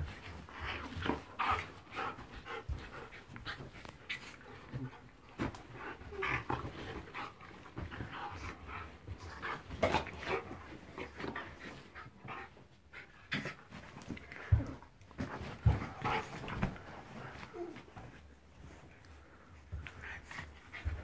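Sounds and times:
dogs panting: 0.0 - 21.0
dogs scuffling on bedding: 13.4 - 21.0.

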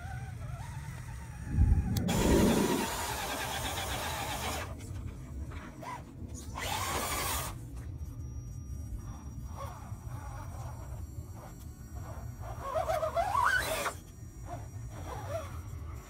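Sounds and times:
rc car motor whining: 0.0 - 16.0
wind rumble on microphone: 1.1 - 3.3.

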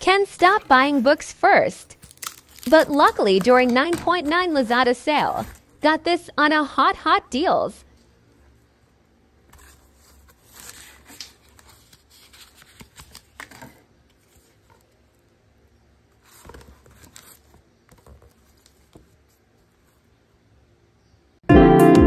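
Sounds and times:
book in plastic jacket rustling: 2.0 - 5.7, 9.5 - 15.0.

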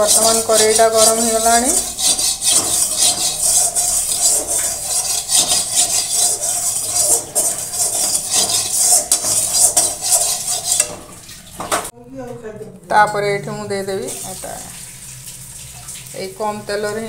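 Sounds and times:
wooden spatula scraping pan: 0.0 - 11.9.

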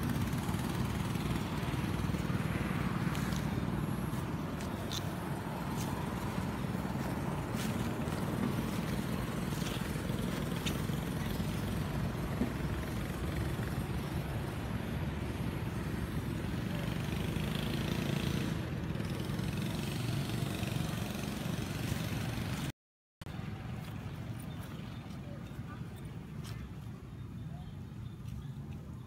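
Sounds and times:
low rumbling outdoor noise: 0.0 - 22.7.

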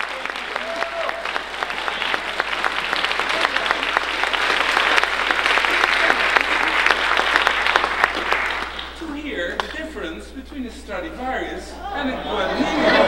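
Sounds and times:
audience applauding: 0.0 - 9.0.

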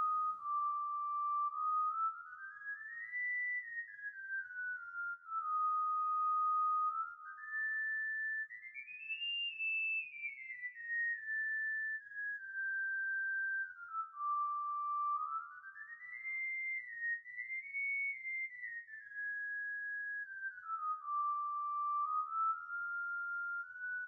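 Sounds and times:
slow whistle-like melody: 0.0 - 24.0.

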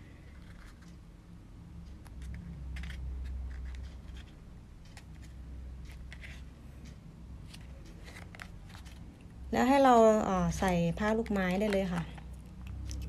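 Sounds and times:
card paper rustling: 2.0 - 4.4, 7.5 - 9.1.

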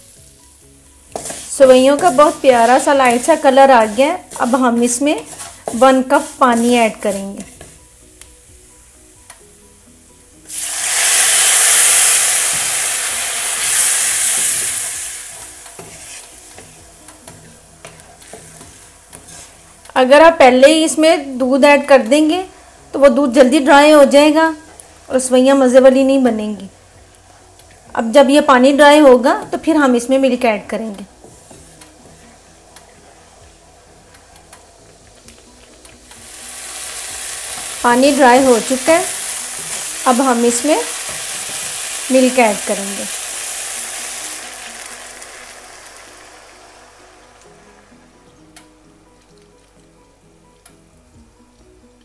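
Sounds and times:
water sizzling in hot oil: 0.0 - 7.8, 10.5 - 20.3, 34.8 - 48.0
faint background music: 0.0 - 52.0.

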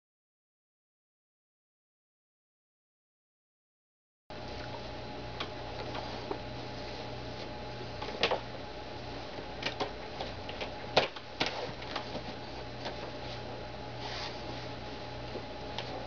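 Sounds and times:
steady hum: 4.3 - 16.0.

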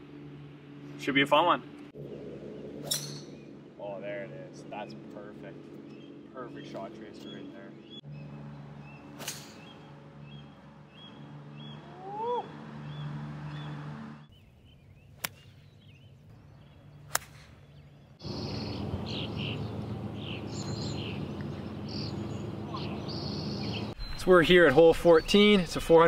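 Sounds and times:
birds chirping: 0.0 - 26.0
golf club striking ball: 2.8 - 3.6, 9.2 - 9.8, 17.1 - 17.6.

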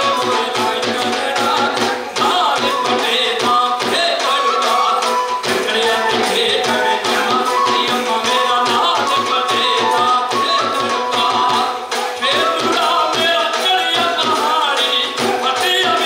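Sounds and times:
fast drum beat: 0.0 - 16.0
sustained folk melody: 0.0 - 16.0.

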